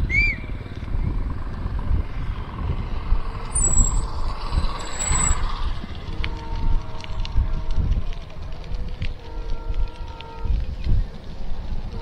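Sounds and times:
bicycle road noise: 0.0s - 12.0s
wind rumble on microphone: 0.0s - 12.0s
high-pitched squeals: 3.4s - 7.9s.

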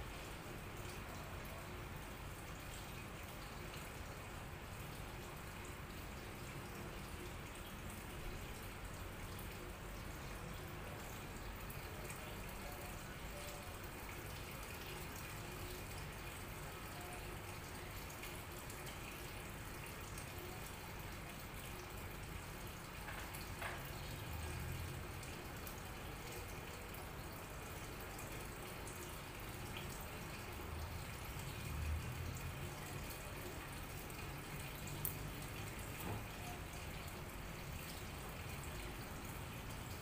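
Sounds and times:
aquarium water trickling: 0.0s - 40.0s
faint knocks and clicks: 23.0s - 23.9s.

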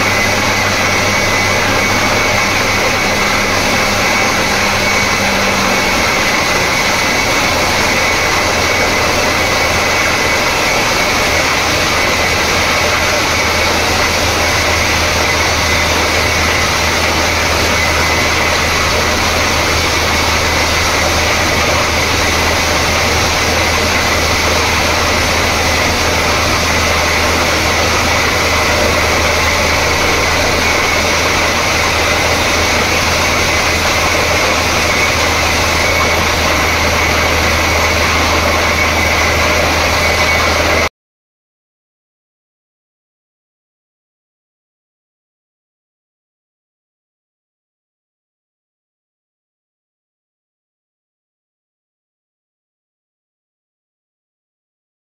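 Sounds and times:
drilling rig engine drone: 0.0s - 40.9s.

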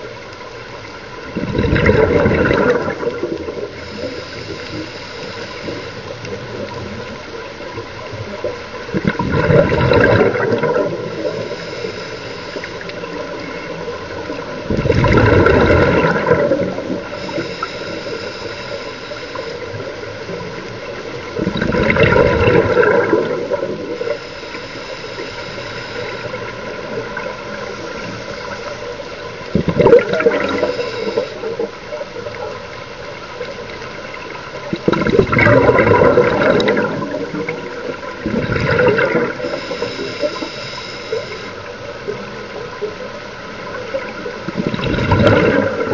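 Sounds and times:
exhaled bubbles gurgling: 0.0s - 11.9s, 12.5s - 24.3s, 25.1s - 45.9s
regulator inhalation hiss: 3.7s - 7.4s, 11.0s - 14.4s, 16.8s - 20.7s, 23.8s - 29.5s, 30.2s - 32.3s, 39.3s - 41.7s.

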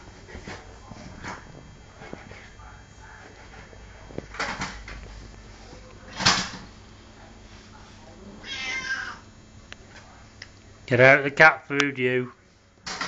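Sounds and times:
cat meowing: 8.4s - 9.2s.

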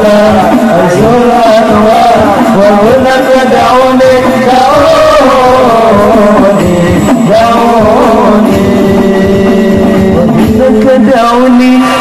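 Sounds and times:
frame drums beating: 0.0s - 12.0s
men singing in unison: 0.0s - 12.0s.

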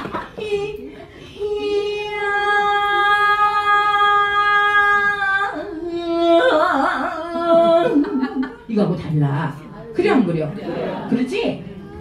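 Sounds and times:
woman singing: 0.1s - 8.6s.

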